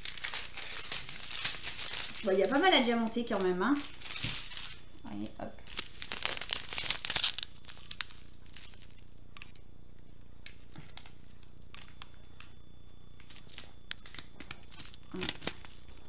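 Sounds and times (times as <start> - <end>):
plastic packaging crinkling: 0.0 - 16.0.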